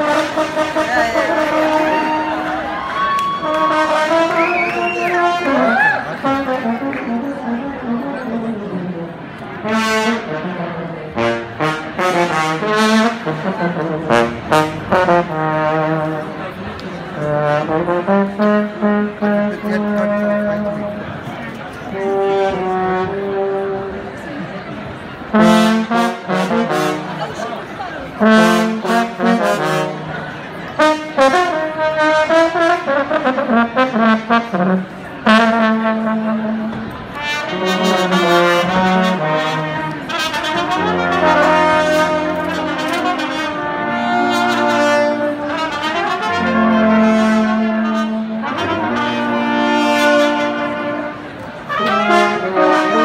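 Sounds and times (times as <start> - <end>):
brass band playing: 0.0 - 53.0.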